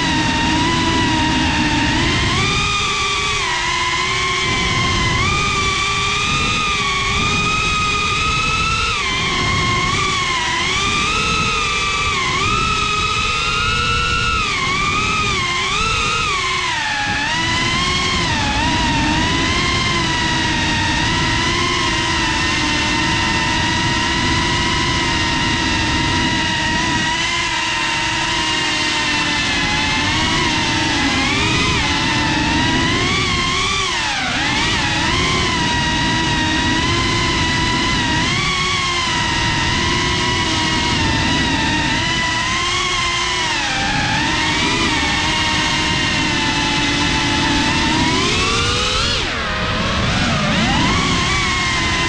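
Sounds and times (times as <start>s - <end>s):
drone motors and propellers whining: 0.0s - 52.0s
wind noise: 0.0s - 52.0s.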